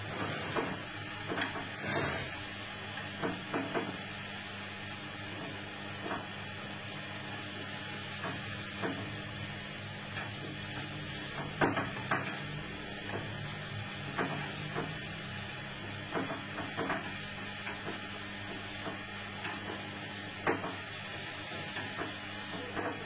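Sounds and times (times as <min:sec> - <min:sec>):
utensil scraping a pan: 0:00.0 - 0:02.6
food sizzling in a pan: 0:00.0 - 0:23.0.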